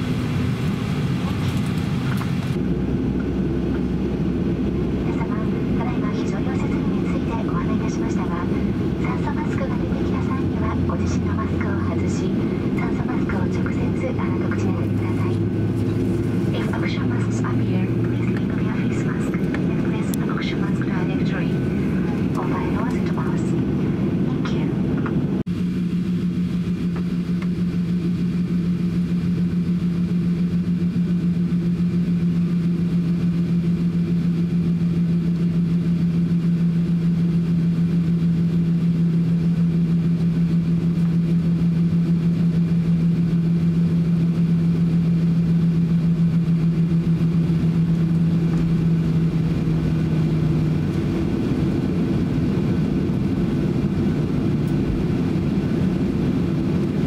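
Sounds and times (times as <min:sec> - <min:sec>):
jet engines idling: 0:00.0 - 0:57.0
steady low hum: 0:00.0 - 0:57.0.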